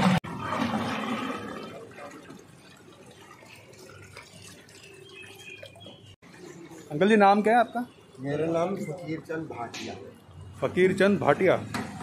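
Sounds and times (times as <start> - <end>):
water pouring into a pot: 0.3 - 6.1.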